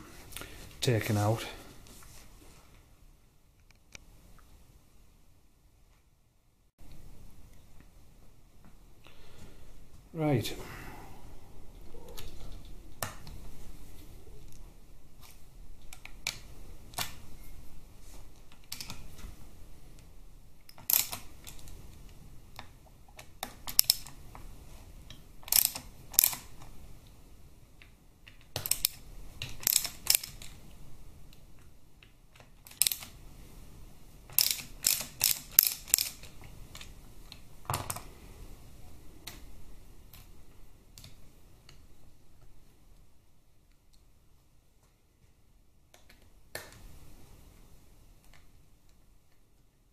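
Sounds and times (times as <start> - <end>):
hand ratchet clicking: 25.5 - 26.4, 28.6 - 30.5, 34.3 - 36.3.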